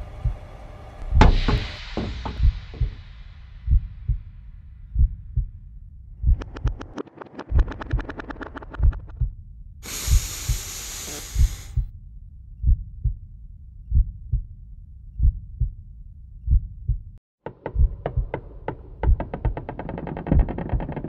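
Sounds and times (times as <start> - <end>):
heartbeat thumps: 1.1 - 11.9, 12.6 - 13.2, 13.9 - 14.5, 15.2 - 15.8, 16.4 - 19.6
hissing rush of noise: 9.8 - 11.8.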